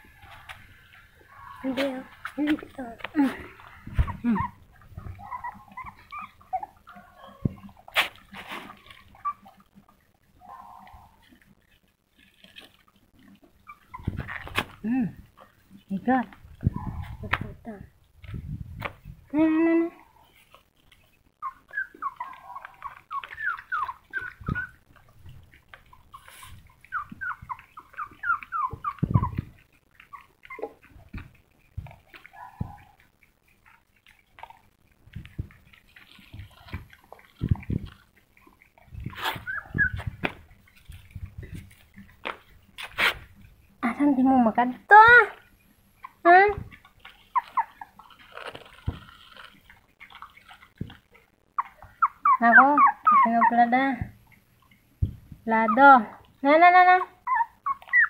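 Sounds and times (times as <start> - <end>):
puppies whimpering: 0.0 - 11.4, 13.3 - 14.4, 19.8 - 33.2, 35.7 - 42.1, 46.0 - 54.4, 56.9 - 58.0
dull thumps: 55.0 - 55.4.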